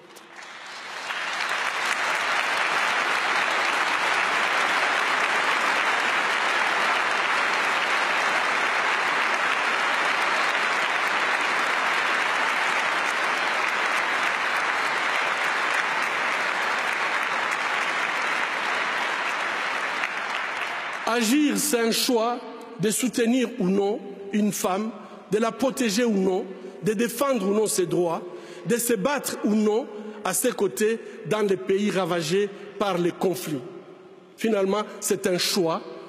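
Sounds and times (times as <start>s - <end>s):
audience applauding: 0.0s - 22.0s.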